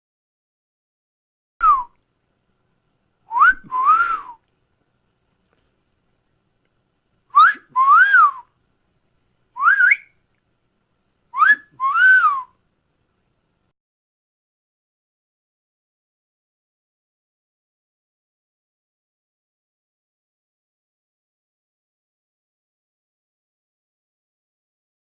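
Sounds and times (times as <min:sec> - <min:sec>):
wolf whistles: 0:03.3 - 0:04.4, 0:07.3 - 0:08.5, 0:09.6 - 0:10.1, 0:11.4 - 0:12.6.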